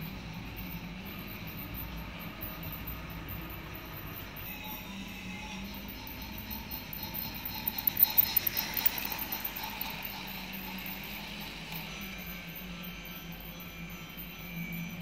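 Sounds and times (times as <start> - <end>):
toy train motor hum: 0.0 - 15.0
toy train wheels clicking: 4.6 - 12.4.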